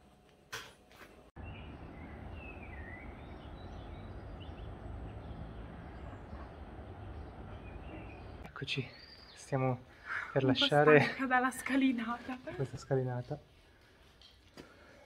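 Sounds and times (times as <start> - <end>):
small birds chirping: 1.4 - 11.1.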